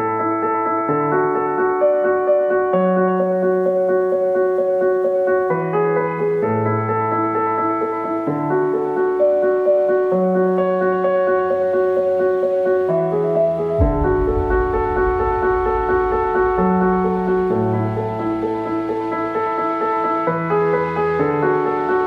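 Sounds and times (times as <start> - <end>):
soft piano chords: 0.0 - 22.0
low bass line: 13.8 - 18.5.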